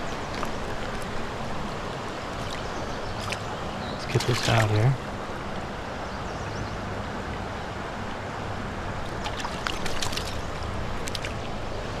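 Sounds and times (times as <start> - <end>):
small sharp splashes and drips: 0.0 - 5.0, 9.0 - 11.9
creek water flowing: 0.0 - 12.0.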